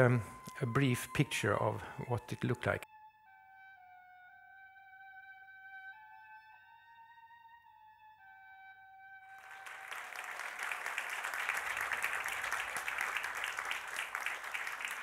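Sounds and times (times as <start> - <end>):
audience applauding: 9.3 - 15.0.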